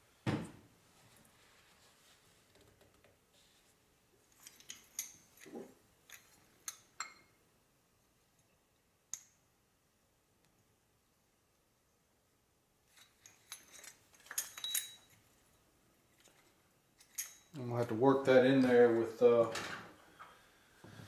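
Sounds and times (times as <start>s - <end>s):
small metallic clicks and clinks: 4.3s - 7.3s, 12.9s - 15.3s, 16.2s - 17.6s.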